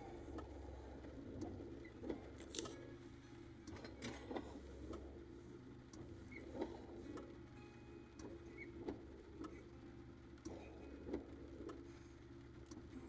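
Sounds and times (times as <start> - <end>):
car engine idling hum: 0.0 - 13.0.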